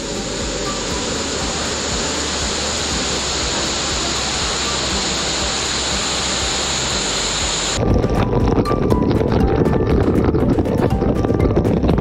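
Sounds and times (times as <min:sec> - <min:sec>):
waterfall rushing: 0:00.0 - 0:07.8.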